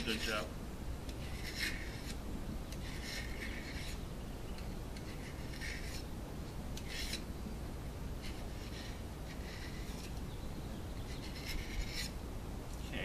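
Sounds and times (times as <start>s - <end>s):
knife blade scraping plastic pipe: 1.1s - 4.0s, 5.0s - 6.1s, 6.8s - 7.3s, 8.2s - 10.2s, 11.1s - 12.2s.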